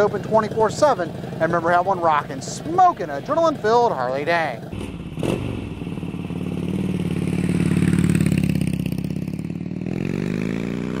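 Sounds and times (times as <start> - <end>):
motorcycle engine revving: 4.6 - 11.0.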